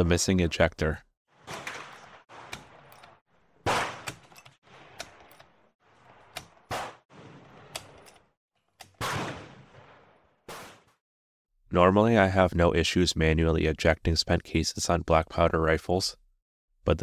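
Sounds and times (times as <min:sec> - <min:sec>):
rifle shots: 0:01.4 - 0:03.0, 0:03.6 - 0:05.2, 0:06.0 - 0:08.0, 0:09.0 - 0:10.9.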